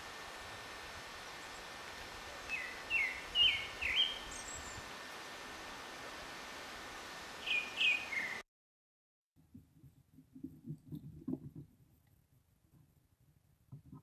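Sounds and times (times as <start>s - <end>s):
steady hiss: 0.0s - 8.4s
short chirping calls: 2.4s - 4.9s, 7.4s - 8.4s.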